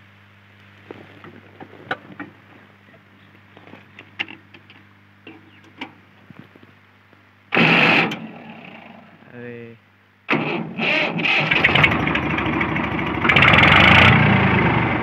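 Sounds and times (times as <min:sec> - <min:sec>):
tractor engine starting burst: 0:07.5 - 0:09.0, 0:10.3 - 0:15.0.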